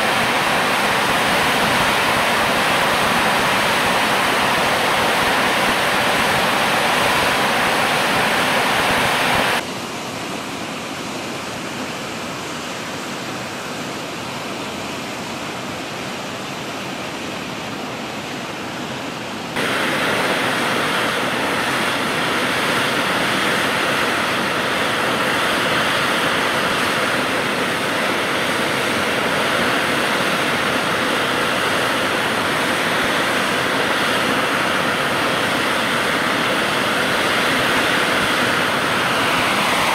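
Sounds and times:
turboprop engines roaring: 19.6s - 39.9s.

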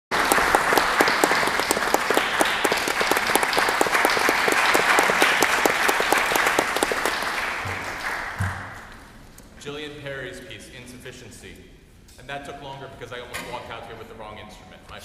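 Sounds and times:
audience applauding: 0.1s - 8.9s.

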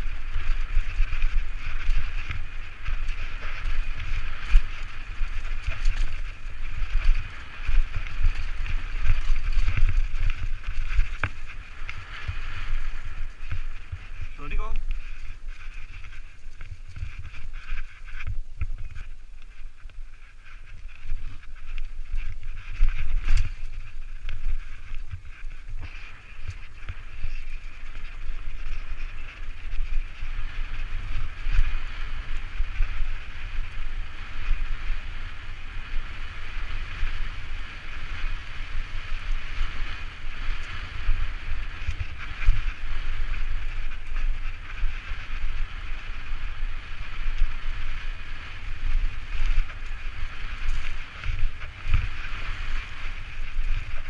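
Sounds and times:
bike rattling: 0.0s - 54.0s
bike tyres rolling: 0.0s - 54.0s
wind rumble on microphone: 0.0s - 54.0s.

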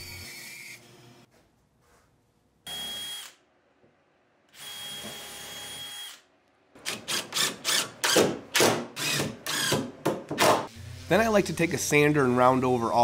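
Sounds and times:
cordless drill whining: 4.6s - 6.2s.

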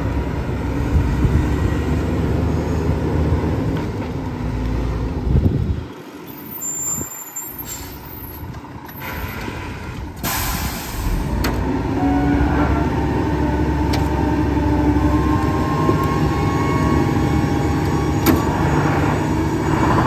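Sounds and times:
garbage truck engine and hydraulics: 0.0s - 20.0s.

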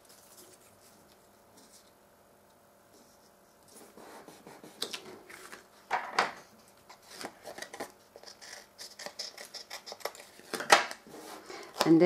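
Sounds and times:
paper rustling: 4.8s - 5.7s.

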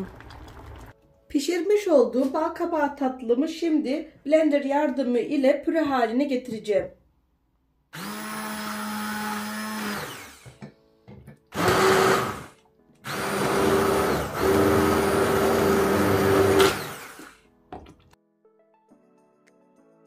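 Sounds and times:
soft background music: 0.2s - 6.8s, 10.5s - 11.6s, 17.4s - 20.0s
electric blender running: 8.0s - 10.6s, 11.5s - 17.4s.

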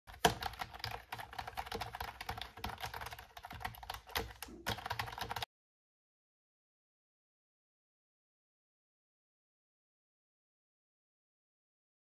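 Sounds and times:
keyboard typing clicks: 0.1s - 5.5s.

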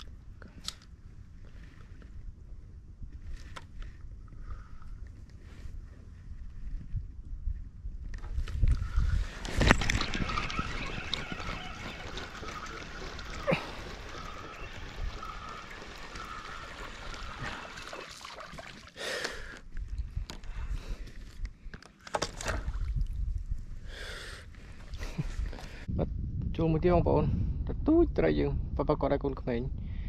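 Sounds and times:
water splashing and trickling: 8.7s - 20.0s, 22.2s - 23.5s.

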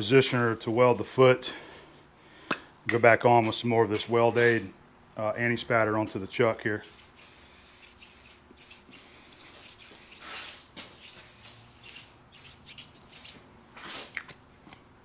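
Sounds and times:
aerosol spray hissing bursts: 6.8s - 13.4s.

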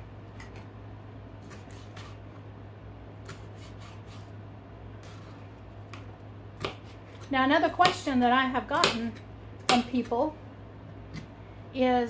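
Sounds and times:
steady low hum: 0.0s - 12.0s
knife chopping on cutting board: 3.3s - 4.3s, 5.9s - 8.1s, 8.8s - 10.1s.

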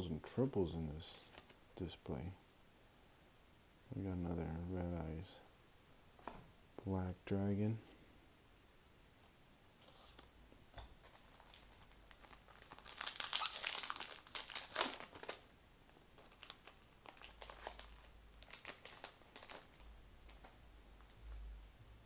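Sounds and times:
foil wrapper tearing and crinkling: 11.0s - 15.5s, 16.2s - 19.9s.

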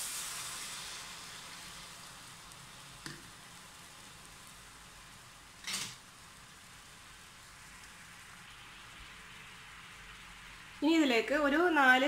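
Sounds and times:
water sizzling in hot pan: 0.0s - 12.0s
light tap: 3.0s - 3.3s.

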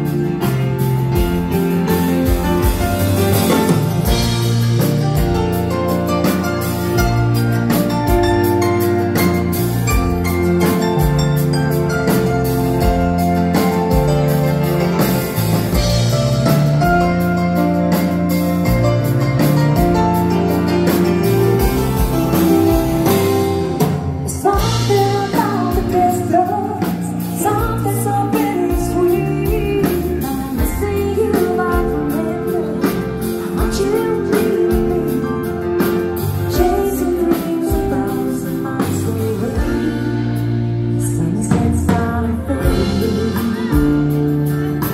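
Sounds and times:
bass: 0.0s - 44.9s
live band playing slow ballad: 0.0s - 44.9s
person singing: 22.4s - 44.9s.

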